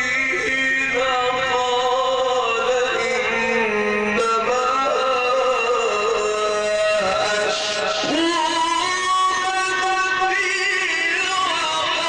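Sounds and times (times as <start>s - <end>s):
man chanting into a microphone: 0.0s - 12.0s.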